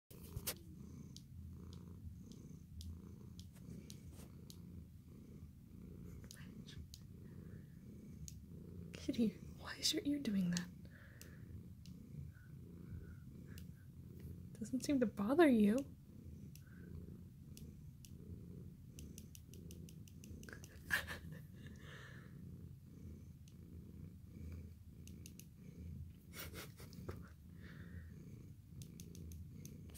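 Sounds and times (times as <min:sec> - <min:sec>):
cat purring: 0:00.1 - 0:29.9
faint clicks: 0:00.2 - 0:04.6, 0:06.1 - 0:07.1, 0:10.3 - 0:12.0, 0:13.4 - 0:15.0, 0:16.5 - 0:16.8, 0:18.9 - 0:21.9, 0:25.0 - 0:25.5, 0:28.8 - 0:29.9.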